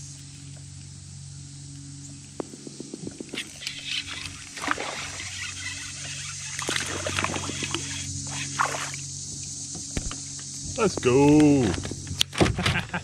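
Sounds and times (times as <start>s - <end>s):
fishing reel whirring: 1.7s - 12.2s
reel clicks: 3.0s - 8.6s
water splashes: 4.2s - 9.0s.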